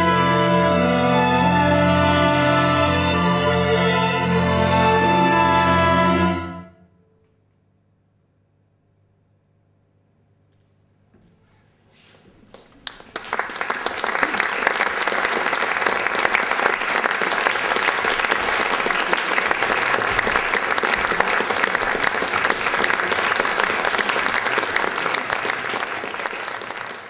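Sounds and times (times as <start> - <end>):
audience applause: 12.5 - 27.0.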